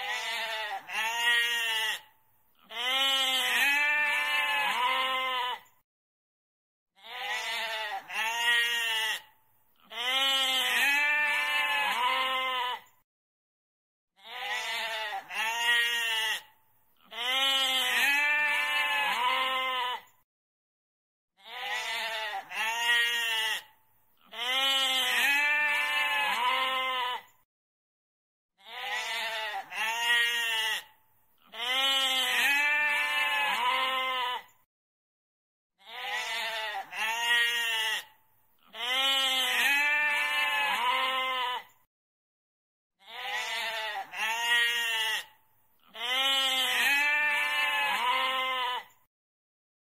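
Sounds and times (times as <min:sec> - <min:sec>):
goat bleating: 0:00.0 - 0:05.7, 0:07.0 - 0:12.9, 0:14.2 - 0:20.1, 0:21.4 - 0:27.3, 0:28.6 - 0:34.6, 0:35.8 - 0:41.8, 0:43.0 - 0:49.0.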